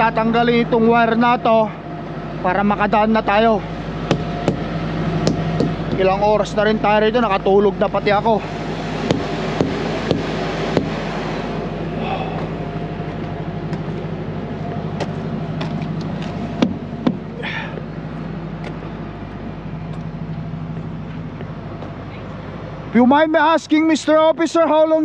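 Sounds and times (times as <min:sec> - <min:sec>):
diesel truck engine idling: 0:00.0 - 0:25.0
loud knocks: 0:04.1 - 0:06.1, 0:09.1 - 0:11.0, 0:16.6 - 0:17.2.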